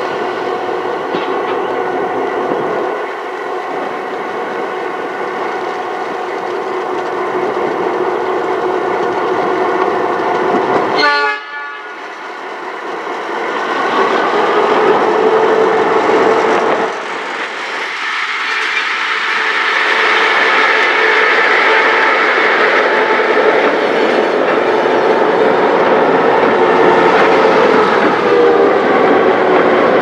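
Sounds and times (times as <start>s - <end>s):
diesel locomotive engines droning: 0.0s - 30.0s
locomotive horn blast: 10.9s - 12.0s, 28.2s - 29.2s.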